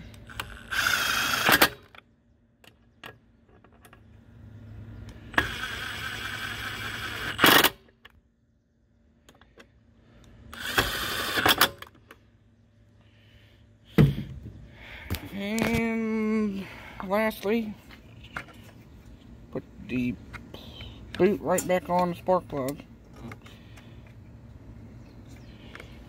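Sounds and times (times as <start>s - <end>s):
cordless power driver running: 0.0s - 2.0s, 5.0s - 8.1s, 10.2s - 12.2s.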